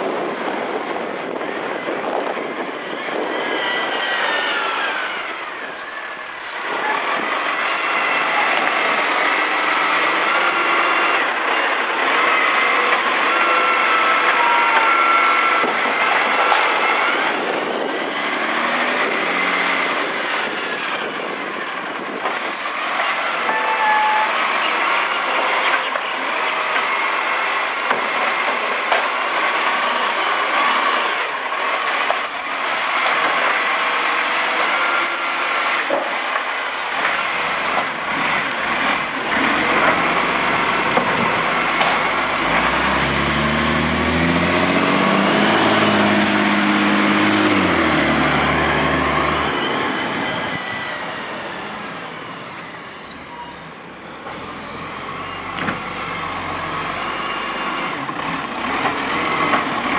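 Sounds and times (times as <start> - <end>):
hydraulics whining: 0.4 - 59.9
garbage truck engine running: 36.0 - 51.4.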